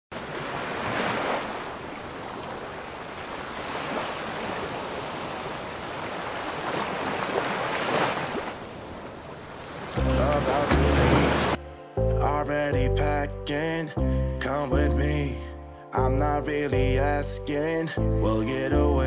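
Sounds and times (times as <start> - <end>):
small waves washing on sand: 0.1 - 11.6.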